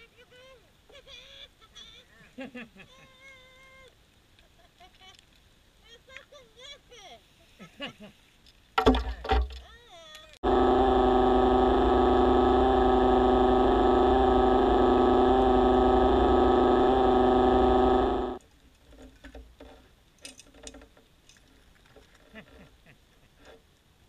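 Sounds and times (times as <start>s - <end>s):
underwater motor whining: 10.4s - 18.4s.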